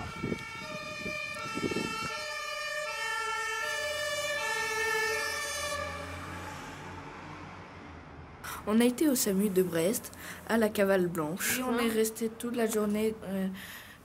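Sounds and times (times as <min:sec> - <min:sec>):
two-tone siren: 0:00.0 - 0:07.2.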